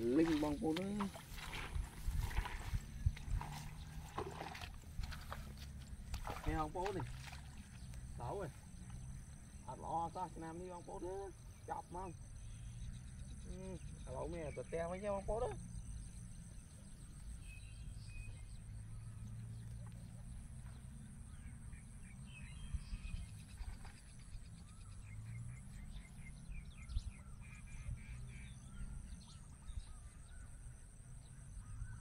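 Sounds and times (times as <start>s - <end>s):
wind rumbling on microphone: 0.0s - 8.7s, 16.6s - 24.9s.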